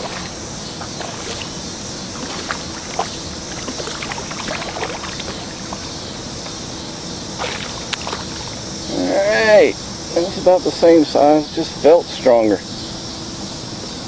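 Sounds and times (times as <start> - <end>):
fish splashing at water surface: 0.0 - 5.9, 7.4 - 8.6.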